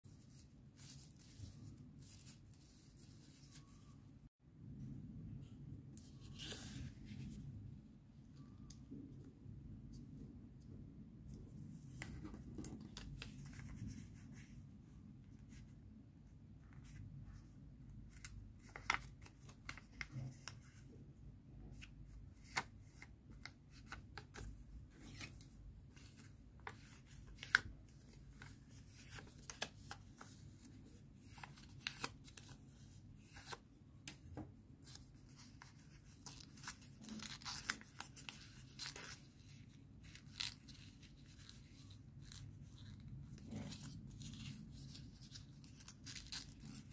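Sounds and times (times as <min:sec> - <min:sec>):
paper crinkling and rustling: 0:18.1 - 0:20.8, 0:21.8 - 0:34.2, 0:34.8 - 0:46.9.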